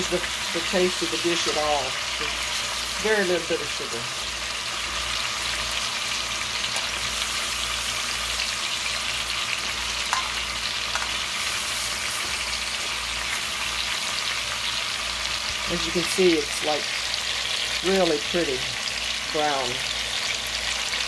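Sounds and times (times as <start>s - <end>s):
chicken sizzling in hot fat: 0.0s - 21.0s.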